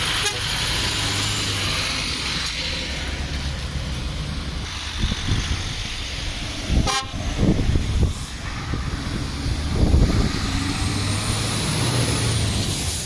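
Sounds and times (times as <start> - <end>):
diesel engine running: 0.0 - 13.0
broad hiss: 4.5 - 13.0.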